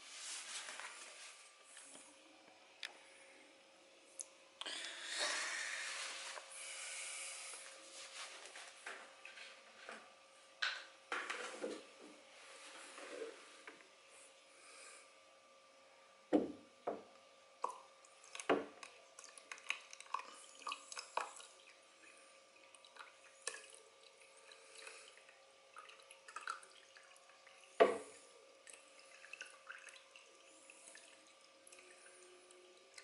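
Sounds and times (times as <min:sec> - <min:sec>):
faint steady hum: 0:00.0 - 0:33.0
water dripping and splashing: 0:17.6 - 0:21.8, 0:22.6 - 0:27.6, 0:28.6 - 0:33.0.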